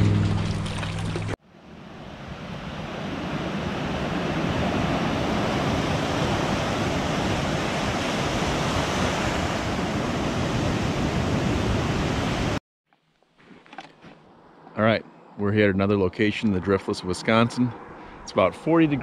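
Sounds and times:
waves crashing on rocks: 2.2s - 12.6s.

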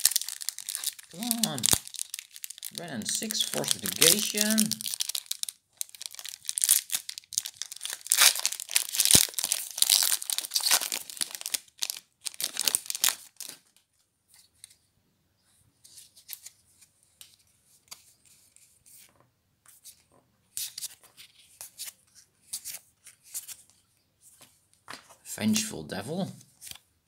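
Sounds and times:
cards rustling: 0.0s - 13.6s
foil wrapper ripping and crinkling: 0.0s - 13.6s.

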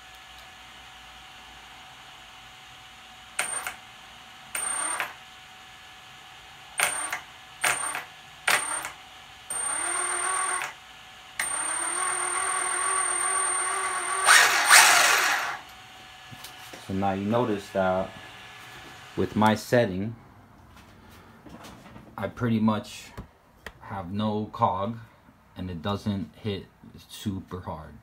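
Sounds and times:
electric motor whine: 8.6s - 19.5s.

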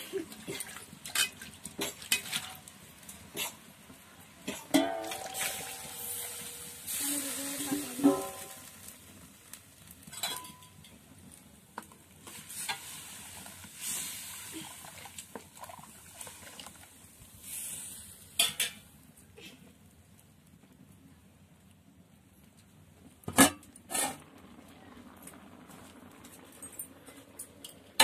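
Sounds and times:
food sizzling in a pan: 4.4s - 10.9s, 12.2s - 18.8s
metal ladle clinking against pan: 4.5s - 6.7s, 8.0s - 8.6s.

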